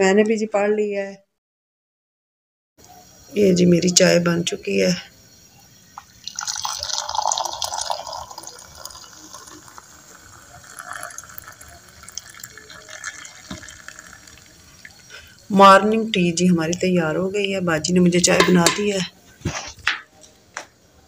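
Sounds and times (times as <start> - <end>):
tea pouring into a mug: 6.2 - 15.6.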